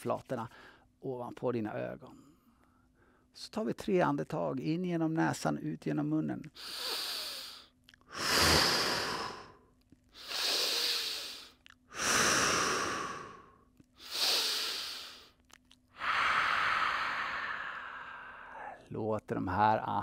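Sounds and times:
man breathing deeply: 6.6 - 15.4, 16.0 - 18.8.

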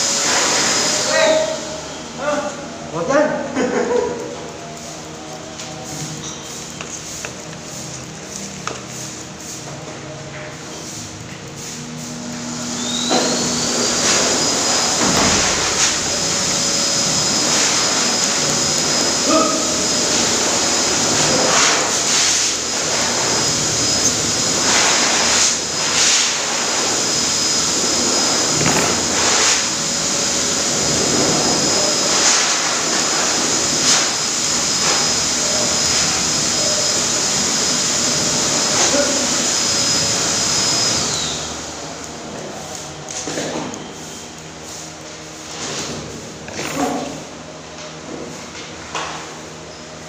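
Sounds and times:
pet blower motor whine: 0.0 - 2.7, 12.0 - 44.4.

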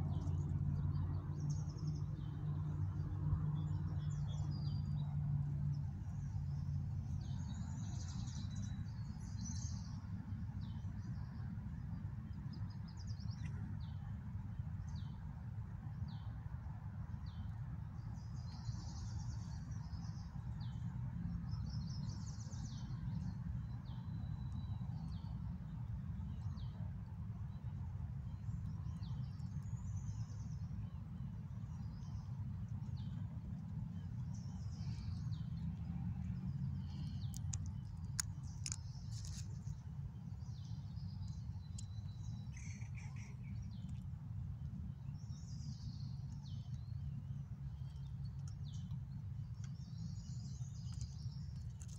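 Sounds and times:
low outdoor rumble: 17.3 - 51.9.

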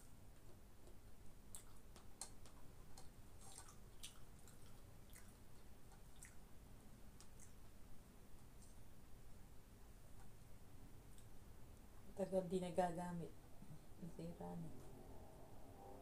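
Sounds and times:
low steady hum: 0.0 - 16.0
person chewing and eating: 0.4 - 6.5, 7.2 - 7.8.

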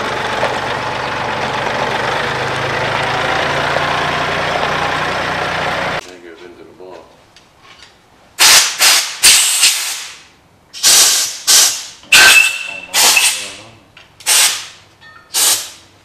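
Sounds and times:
compressed air blasts hissing: 8.4 - 10.2, 10.8 - 11.9, 12.9 - 13.6, 14.2 - 14.8, 15.4 - 15.8.

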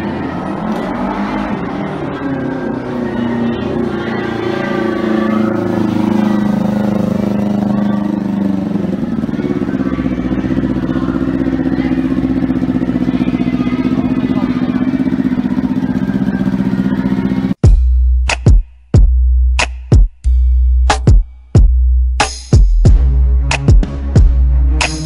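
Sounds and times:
motorcycle engine idling: 3.0 - 17.8.

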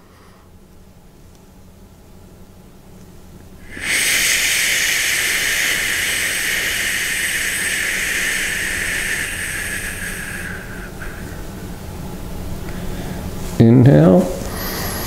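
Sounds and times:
person exhaling a shhh hiss: 3.6 - 11.8.

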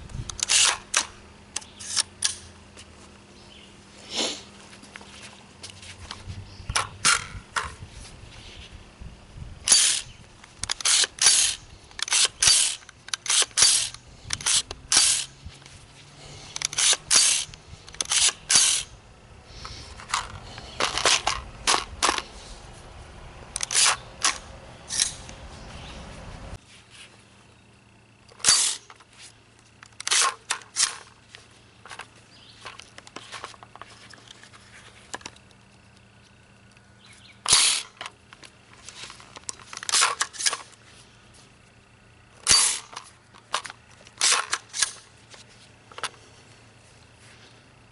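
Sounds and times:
rifle metallic clicks: 0.2 - 2.5, 9.6 - 15.4, 16.6 - 18.9, 23.6 - 25.4, 29.8 - 31.1.

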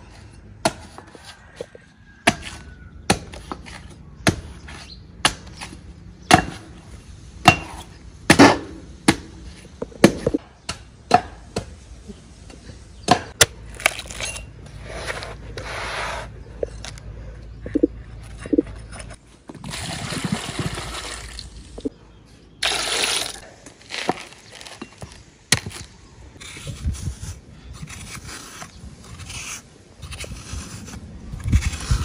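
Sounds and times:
machete chopping coconut husk: 2.2 - 6.8, 7.4 - 11.8, 23.3 - 25.9.

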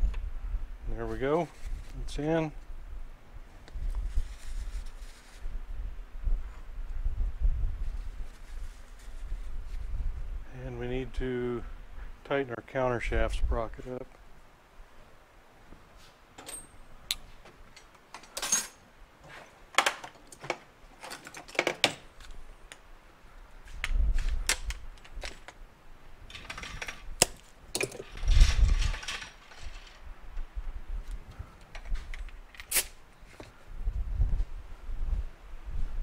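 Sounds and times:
hand tools clinking on metal: 16.4 - 16.8, 17.7 - 18.8.

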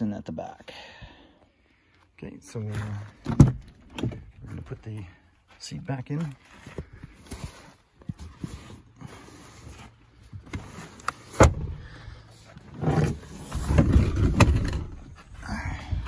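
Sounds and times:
seat bumping and rubbing: 8.0 - 15.3.

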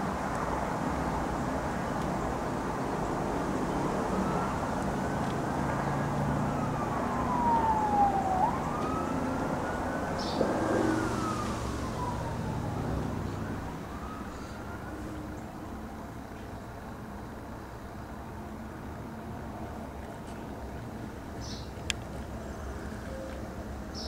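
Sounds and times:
outdoor background hiss: 0.0 - 24.0
emergency siren wailing: 2.6 - 16.2.

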